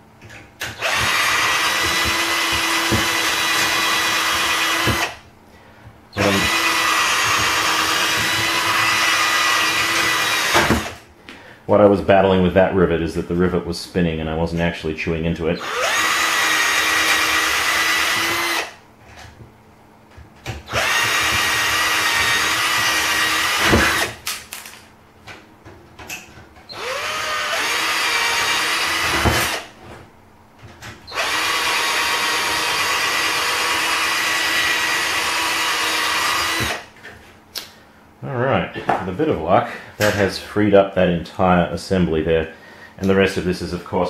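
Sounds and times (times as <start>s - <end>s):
electric drill drilling metal: 0.6s - 5.2s, 6.2s - 11.0s, 15.6s - 18.8s, 20.7s - 24.2s, 26.7s - 29.7s, 31.1s - 36.8s.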